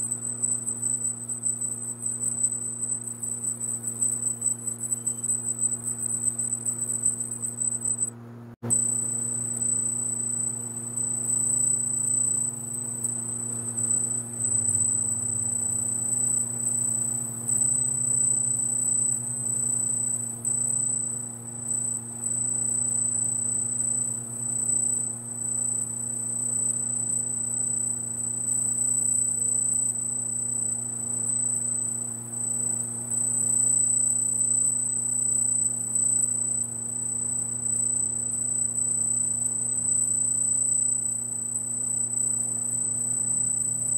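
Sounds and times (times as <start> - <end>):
high-pitched machine whine: 0.0 - 8.1, 8.7 - 43.9
low electrical hum: 0.0 - 34.9.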